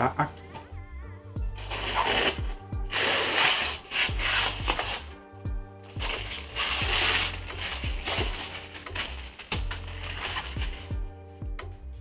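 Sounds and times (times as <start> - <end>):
background music with drum beat: 1.4 - 12.0
plastic film crinkling: 1.6 - 5.1, 5.8 - 11.0.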